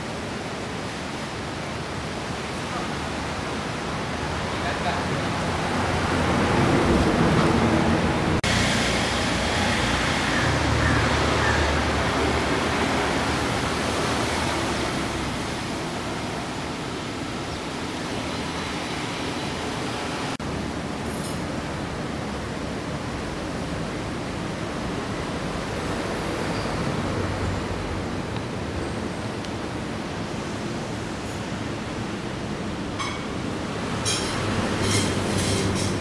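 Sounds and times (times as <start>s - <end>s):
loud rushing noise: 5.2s - 16.5s.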